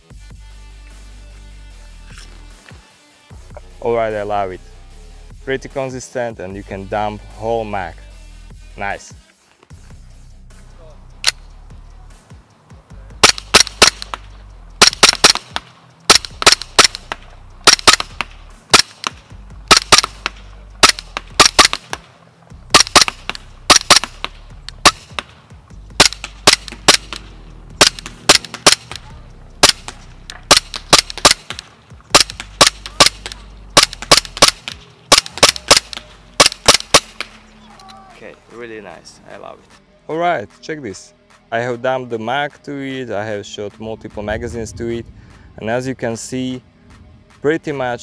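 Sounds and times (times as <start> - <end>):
airsoft pistol shots: 13.2 - 22.1, 22.7 - 25.4, 26.0 - 37.4.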